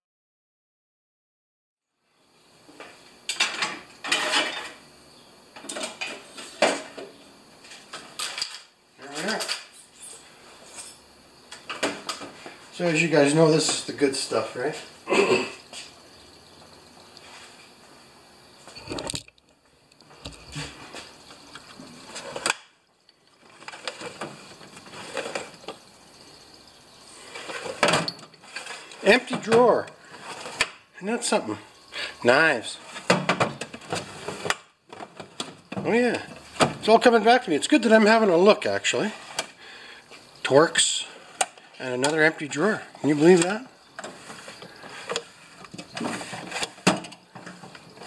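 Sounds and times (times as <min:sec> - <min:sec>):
tool chest metal clanks and rattles: 0:03.3 - 0:04.8, 0:45.0 - 0:47.8
tools rattling and clinking: 0:03.3 - 0:04.8
steel drawers sliding: 0:23.6 - 0:25.6, 0:32.8 - 0:35.5, 0:43.1 - 0:47.8.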